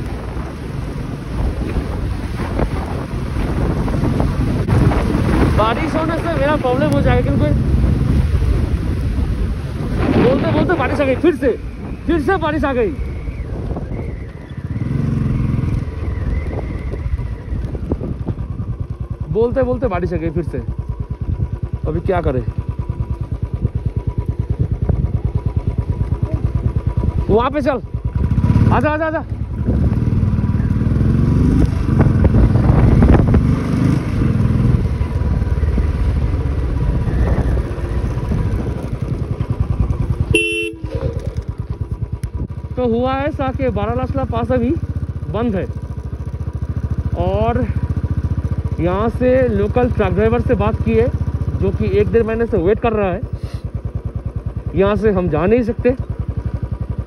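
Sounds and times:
wind noise on microphone: 0.0s - 20.0s, 24.5s - 25.8s, 29.4s - 42.6s
motorcycle engine rumbling: 0.0s - 57.0s.

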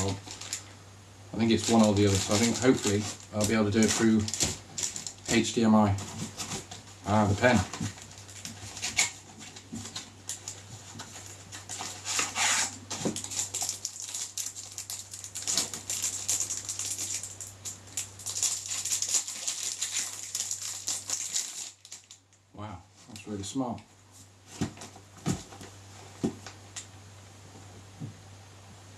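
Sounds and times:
plastic packaging rustling: 0.0s - 0.8s, 1.4s - 22.3s.

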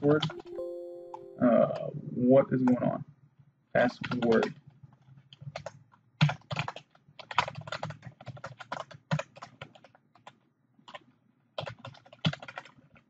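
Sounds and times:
keyboard typing: 0.0s - 1.9s, 3.9s - 4.6s, 5.3s - 13.0s.

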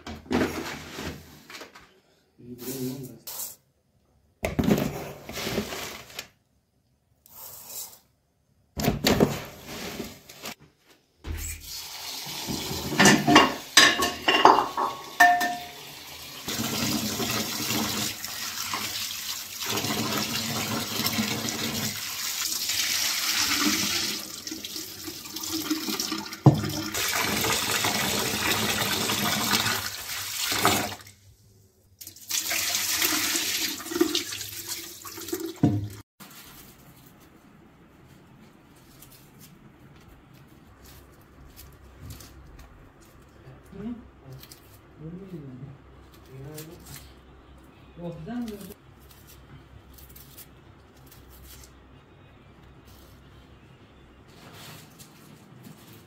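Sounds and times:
running tap water: 11.6s - 31.2s, 32.0s - 36.0s
metal pot knocks and rattles: 12.9s - 15.8s
water poured from pot: 14.7s - 31.1s, 32.0s - 36.0s.

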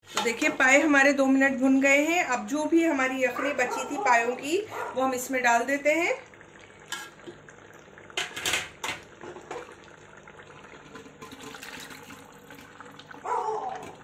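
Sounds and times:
liquid pouring faintly: 5.1s - 14.0s
stock splashing into pot: 8.1s - 9.8s, 10.8s - 14.0s.

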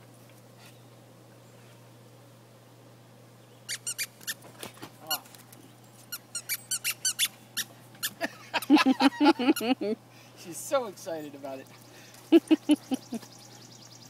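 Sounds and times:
squeaky dog toy squeaking: 3.7s - 4.4s, 6.1s - 8.2s.

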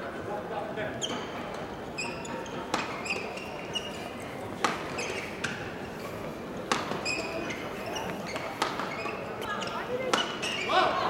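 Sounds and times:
murmur in large hall: 0.0s - 11.0s
shoes squeaking on court: 1.0s - 6.1s, 6.7s - 10.8s
racket hitting shuttlecock: 2.7s - 3.0s, 4.6s - 5.6s, 6.7s - 7.1s, 8.3s - 8.9s, 10.1s - 10.5s.

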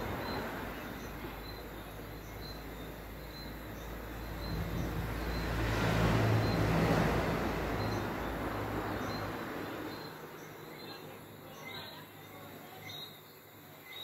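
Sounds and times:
vehicle passing by: 0.0s - 10.7s.

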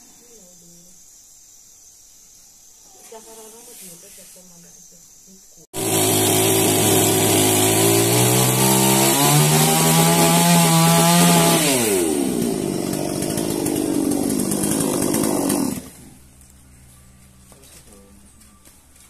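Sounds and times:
chainsaw cutting log: 5.8s - 16.2s.

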